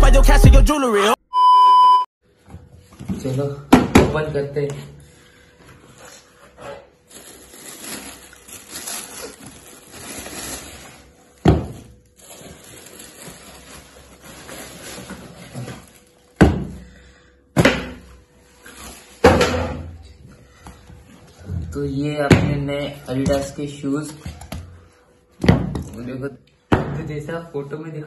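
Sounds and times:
cardboard and tissue paper rustling: 5.6 - 16.4, 18.4 - 19.4.

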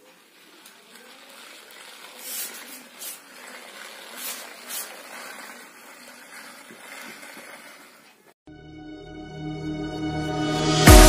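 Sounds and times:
toy tractor motor whirring: 0.0 - 8.4.

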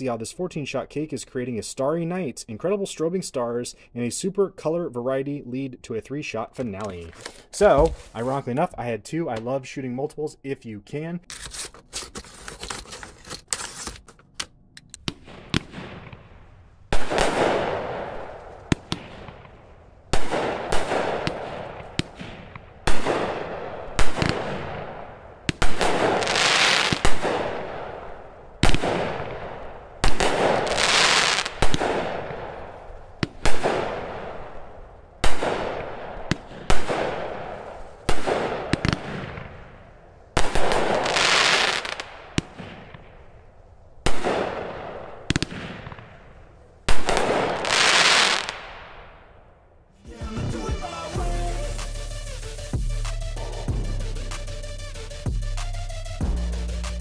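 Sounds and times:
crackling firework bursts: 15.0 - 43.4, 46.9 - 48.9
firework shots: 15.0 - 49.4.

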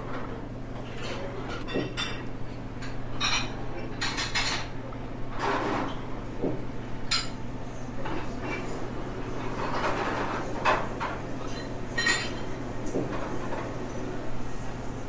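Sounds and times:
cup and cutlery clinking: 9.5 - 13.2.

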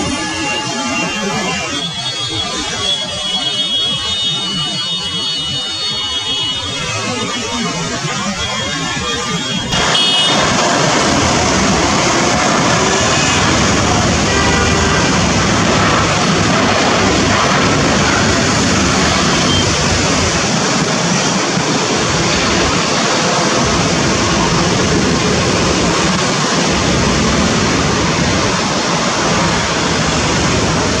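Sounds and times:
turboprop engines at high power: 0.0 - 31.0.

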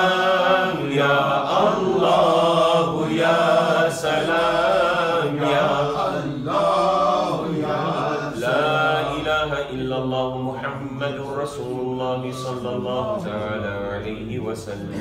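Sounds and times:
man chanting into a microphone: 8.4 - 15.0.

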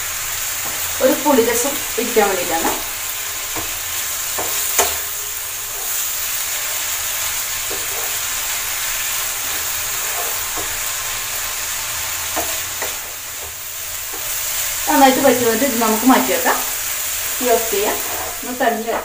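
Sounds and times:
food sizzling in a frying pan: 0.0 - 19.0
spatula knocking and scraping pan: 3.5 - 6.1, 7.5 - 8.4, 9.4 - 10.9, 12.3 - 14.4.

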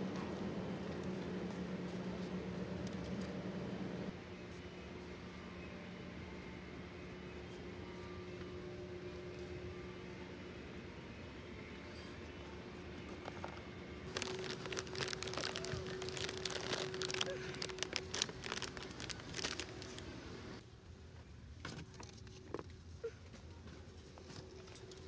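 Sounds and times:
steady low hum: 0.0 - 21.4
plastic pouch crinkling: 14.1 - 20.2.

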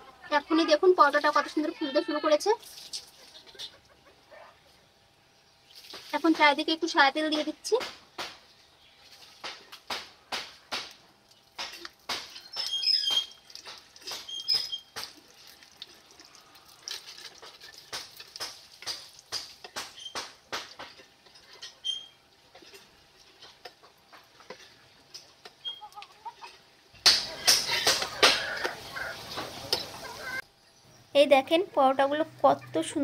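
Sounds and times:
hot oil crackling and spitting: 2.6 - 3.5, 5.6 - 6.6, 8.0 - 30.4.

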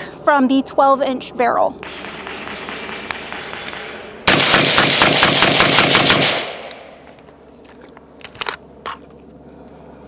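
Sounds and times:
suppressed rifle rapid fire: 1.8 - 7.0.

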